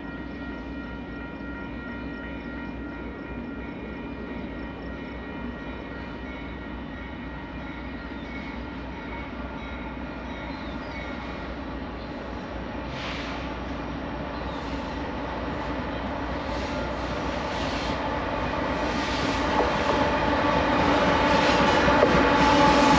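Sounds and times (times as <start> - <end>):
high-pitched ringing: 0.0 - 12.3
train wheels rumbling on rails: 0.0 - 22.9.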